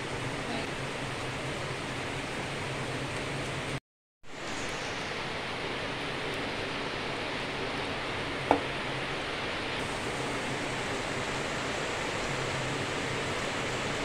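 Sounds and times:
deep-frying sizzle in hot oil: 0:00.0 - 0:14.0.

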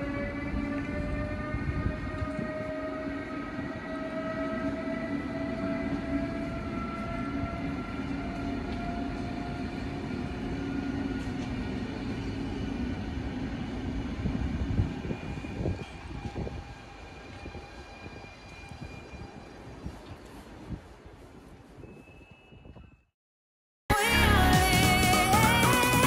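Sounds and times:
electric locomotive motor whine: 0:00.0 - 0:20.8
wheels rumbling on rails: 0:00.0 - 0:22.0.

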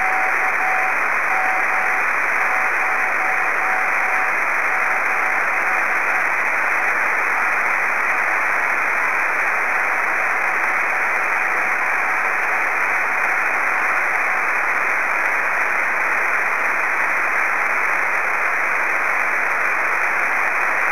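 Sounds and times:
faint morse code tone: 0:00.0 - 0:06.3
radio receiver hiss: 0:00.0 - 0:20.9.

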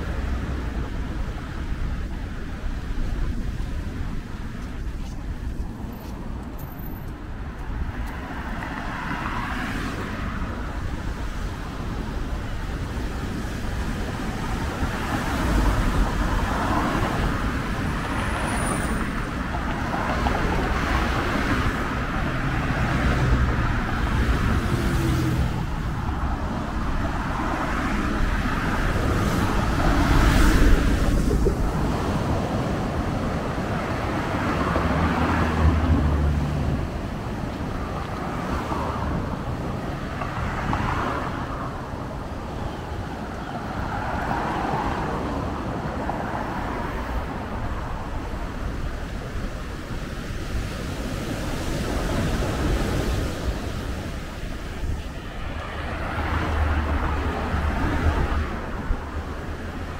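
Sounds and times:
cars passing: 0:00.0 - 0:59.9.

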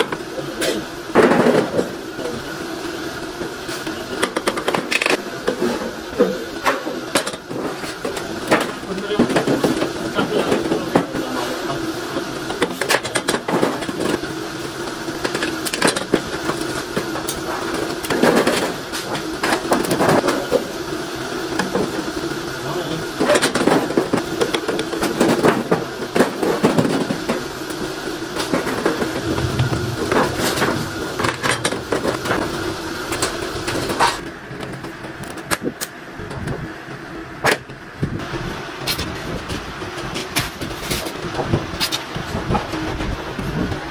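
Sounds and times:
machine hum: 0:00.0 - 0:40.0
metal sheet rattling: 0:29.0 - 0:32.5.

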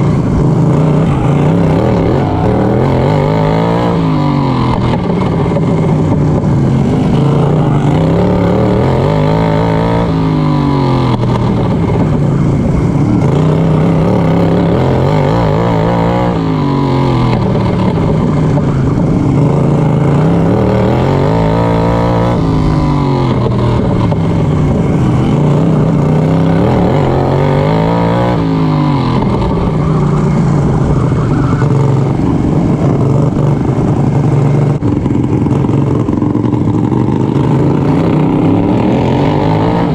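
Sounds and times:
lawnmower engine racing: 0:00.0 - 0:39.9.

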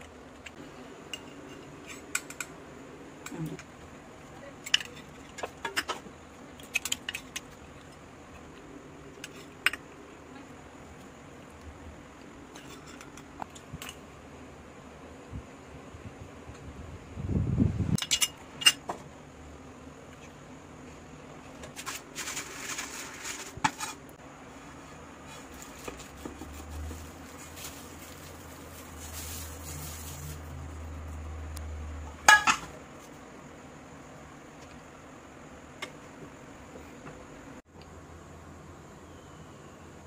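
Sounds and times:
spatula scraping a pan: 0:21.8 - 0:24.1.

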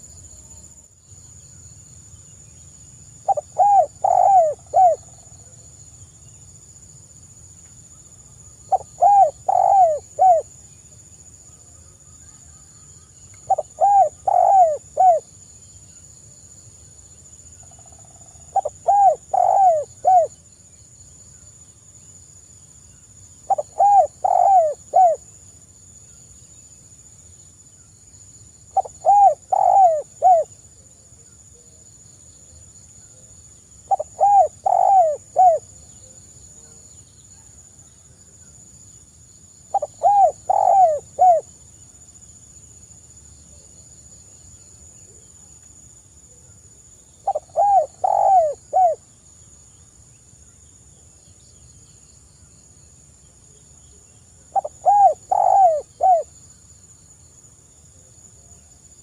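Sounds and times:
dove cooing: 0:03.3 - 0:05.1, 0:08.7 - 0:10.5, 0:13.5 - 0:15.3, 0:18.5 - 0:20.3, 0:23.5 - 0:25.2, 0:28.8 - 0:30.5, 0:33.9 - 0:35.7, 0:39.7 - 0:41.5, 0:47.2 - 0:49.0, 0:54.5 - 0:56.3.

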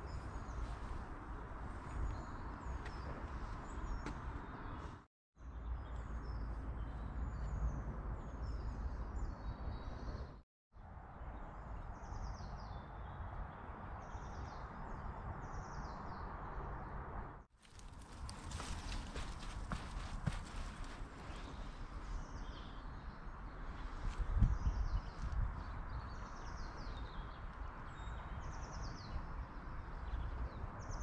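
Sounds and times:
small birds chirping: 0:00.0 - 0:10.4, 0:17.6 - 0:31.0.

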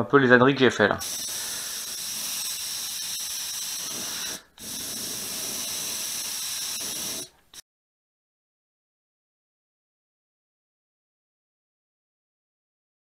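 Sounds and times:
airbrush spraying hiss: 0:01.0 - 0:07.6.

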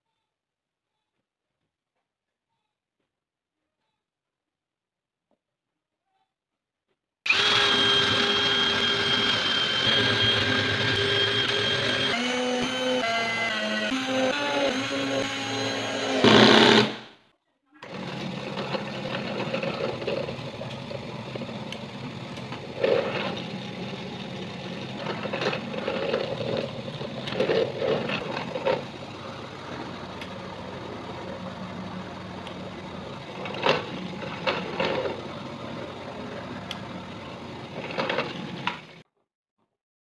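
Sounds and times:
drill bit cutting plywood: 0:07.3 - 0:17.1, 0:17.8 - 0:39.0
drill press motor running: 0:07.3 - 0:17.1, 0:17.8 - 0:39.0.

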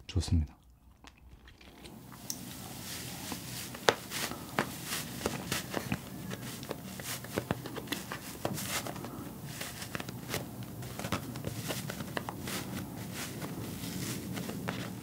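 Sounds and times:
cotton candy crackling and rustling: 0:01.2 - 0:15.0.

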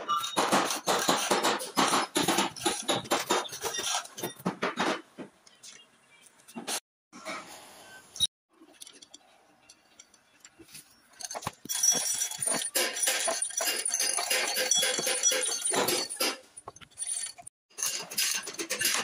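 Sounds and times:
steel chain clinking and rattling: 0:08.7 - 0:19.0.

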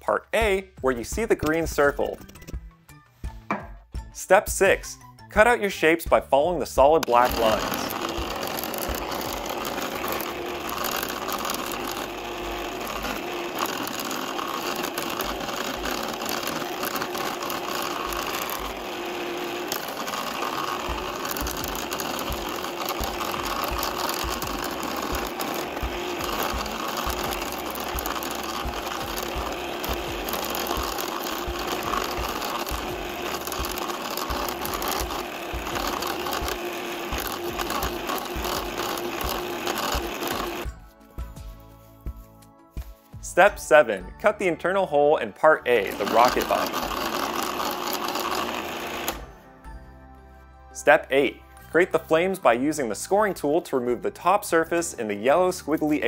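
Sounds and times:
electric saw cutting cardboard: 0:06.9 - 0:40.7, 0:45.7 - 0:49.3.

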